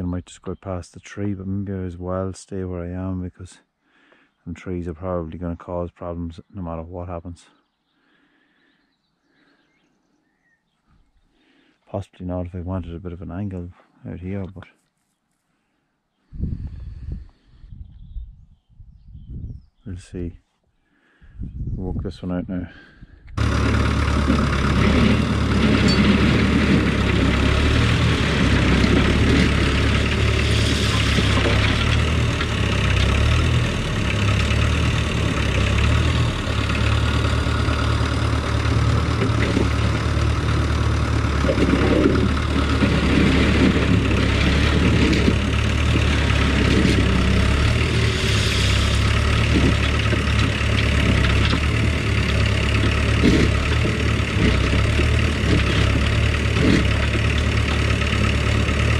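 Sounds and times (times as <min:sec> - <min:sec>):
diesel engine running: 0:22.8 - 0:58.9
bursts of working noise: 0:23.4 - 0:58.9.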